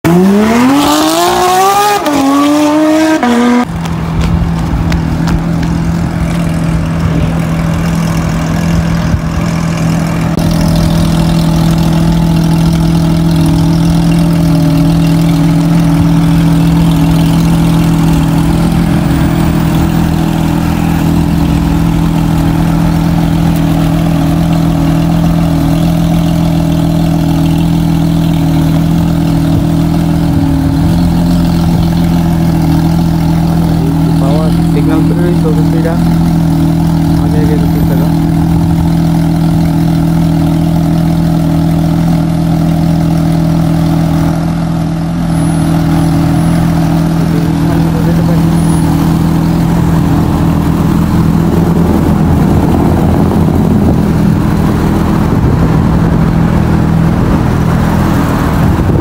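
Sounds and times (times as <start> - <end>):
car engine revving hard: 0.0 - 3.7
engine drone with low rumble: 0.0 - 59.0.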